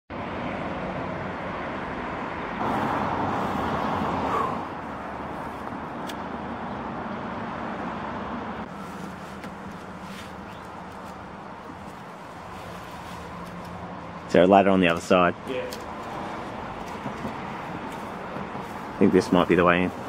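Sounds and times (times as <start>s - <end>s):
road traffic noise: 0.1s - 20.0s
vehicle passing: 0.2s - 20.0s.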